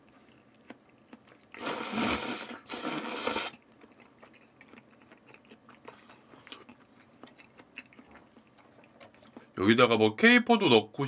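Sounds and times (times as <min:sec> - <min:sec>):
quiet chewing: 0:00.0 - 0:01.8, 0:02.7 - 0:09.6
person slurping: 0:01.6 - 0:03.6.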